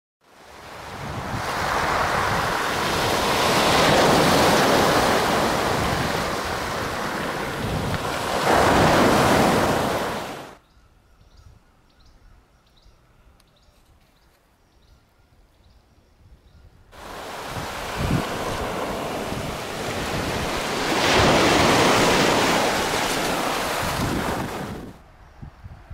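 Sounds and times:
wind: 0.2s - 25.9s
waves washing onto pebbly beach: 0.5s - 10.6s, 17.0s - 25.0s.

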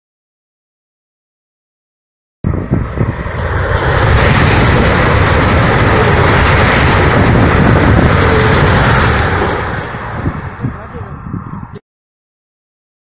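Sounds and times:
high-speed train passing: 2.4s - 11.8s.

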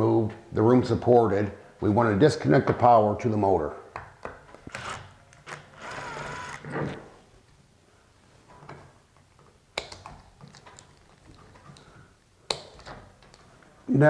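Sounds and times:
motor whirr: 4.7s - 7.1s
clicks and knocks of connectors: 8.7s - 11.9s, 12.5s - 13.5s.

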